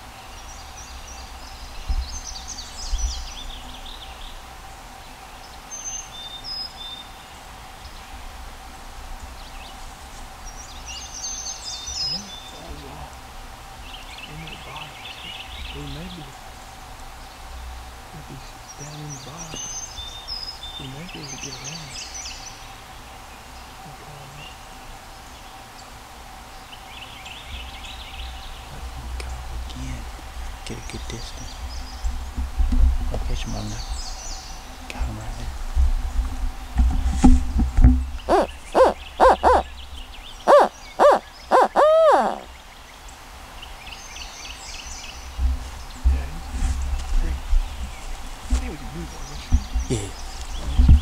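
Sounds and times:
high songbird chirps: 0.0 - 8.4, 9.2 - 32.4, 33.1 - 35.6, 38.1 - 51.0
woodland background noise: 0.0 - 51.0
distant turkey gobbling: 38.2 - 39.7, 40.4 - 42.5
owl hooter call: 38.3 - 39.8, 40.4 - 42.5.

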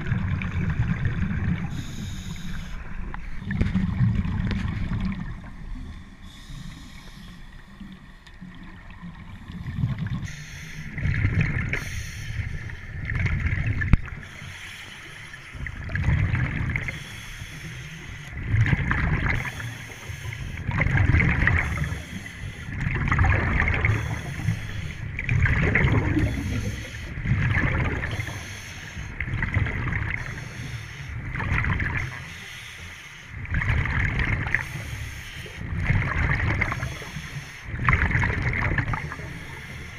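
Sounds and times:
exhaled bubbles rumbling: 0.0 - 14.5, 15.5 - 32.3, 33.3 - 39.9
regulator breath hiss: 1.7 - 2.9, 6.2 - 7.6, 10.2 - 11.0, 11.8 - 12.8, 14.2 - 15.6, 16.8 - 18.4, 21.6 - 22.8, 23.9 - 25.1, 26.3 - 27.2, 28.1 - 29.2, 30.2 - 31.2, 32.0 - 33.3, 34.6 - 35.6, 36.8 - 37.7, 39.2 - 39.9.

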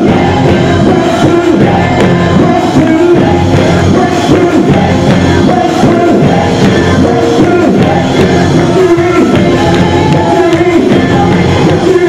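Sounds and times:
drums: 0.0 - 12.0
gospel band playing: 0.0 - 12.0
people singing: 0.0 - 12.0.

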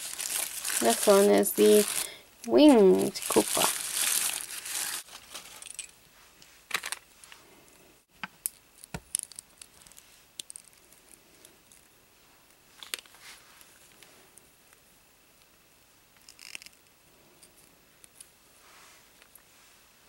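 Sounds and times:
wrapper crinkling: 0.0 - 5.9.

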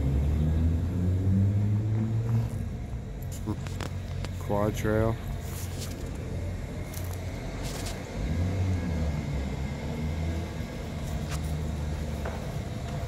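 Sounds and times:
traffic rumble overhead: 0.0 - 13.0.

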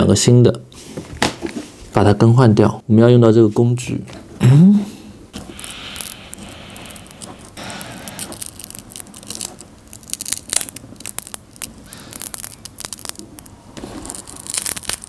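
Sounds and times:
small clicks and crackles: 5.5 - 15.0.

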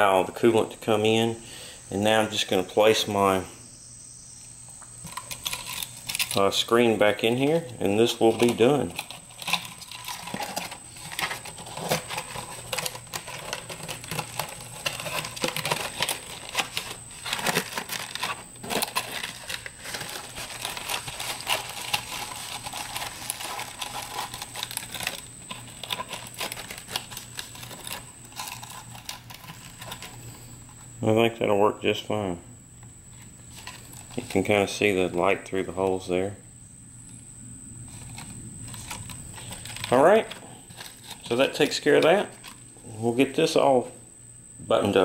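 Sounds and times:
wire mesh crinkling and scraping: 5.0 - 30.8.

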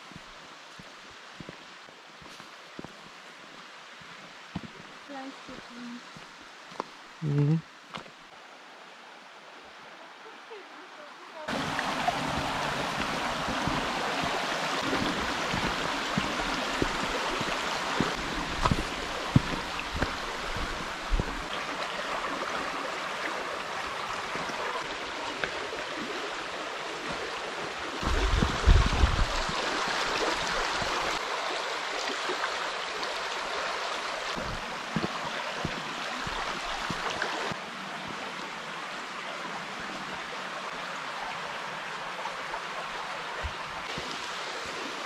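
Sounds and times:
footsteps on dirt path: 0.0 - 7.0, 7.9 - 8.2, 11.5 - 21.8, 28.0 - 29.6, 34.3 - 37.5
stream flowing over rocks: 0.0 - 45.0.

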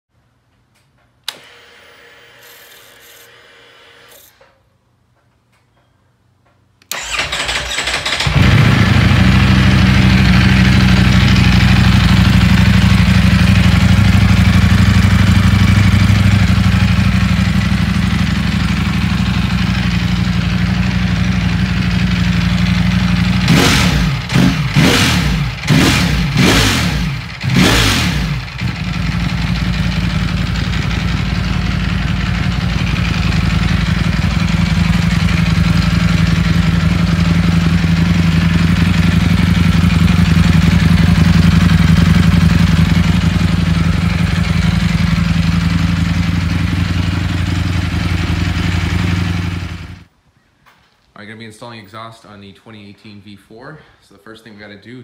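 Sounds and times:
motorcycle engine revving: 6.9 - 50.1
motorcycle engine idling: 7.0 - 50.1.

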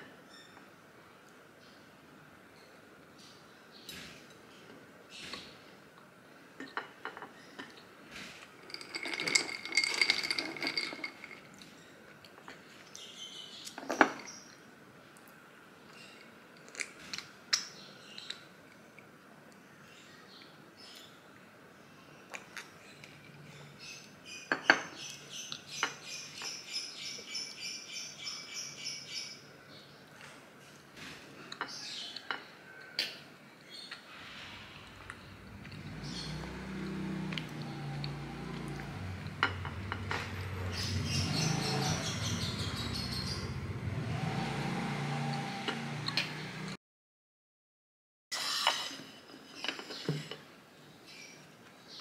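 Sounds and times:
stirrer clinking against glass: 8.6 - 11.6.

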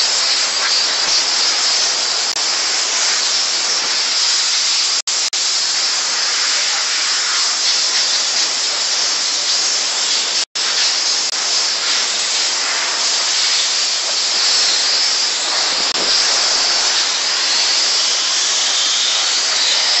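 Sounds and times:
steam jet hissing: 0.0 - 20.0.

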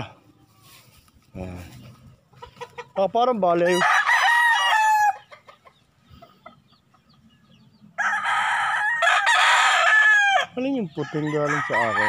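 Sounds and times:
roosters crowing: 2.4 - 6.6, 7.8 - 12.0.

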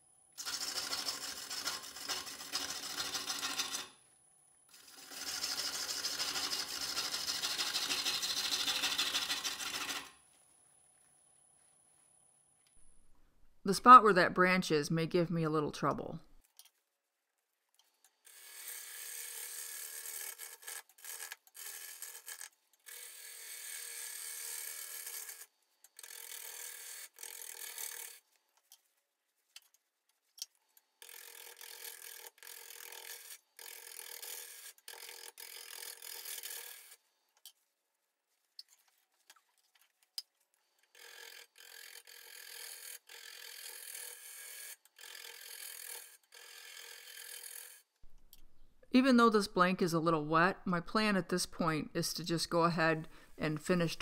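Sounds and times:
gouge shaving wood on a lathe: 0.4 - 3.9, 4.7 - 10.2, 18.3 - 28.2, 31.0 - 37.0, 41.0 - 47.8.

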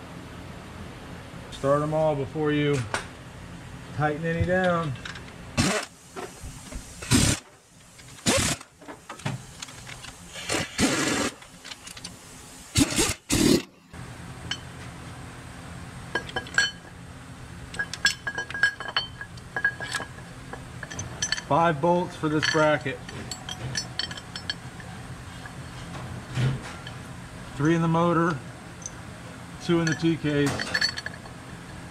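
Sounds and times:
steady low hum: 0.0 - 31.9
air ratchet bursts: 5.6 - 6.0, 7.0 - 7.4, 8.2 - 8.7, 10.3 - 11.4, 12.7 - 13.7
metallic clinks of bolts and tools: 16.1 - 16.9, 17.7 - 25.9, 29.6 - 31.8.

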